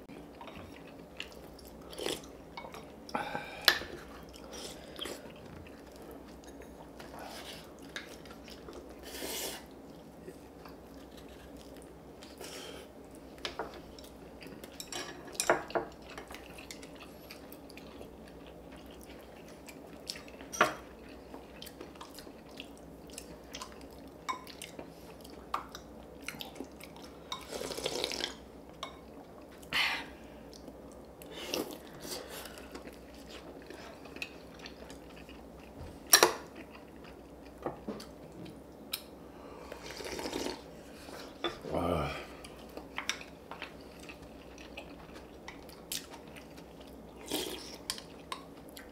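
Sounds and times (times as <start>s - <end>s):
chewing: 15.6s - 28.4s, 30.5s - 39.1s, 42.4s - 48.9s.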